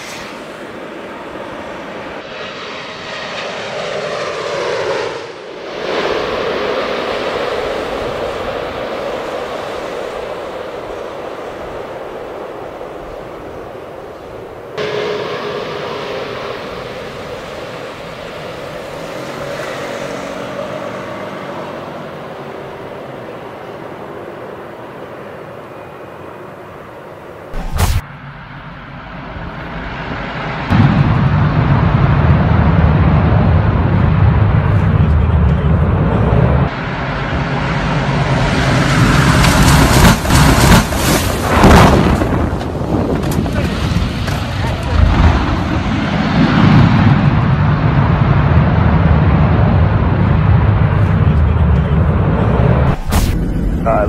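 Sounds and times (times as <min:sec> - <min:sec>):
jet engines rumbling: 0:00.0 - 0:54.0
propeller plane passing low: 0:00.0 - 0:54.0.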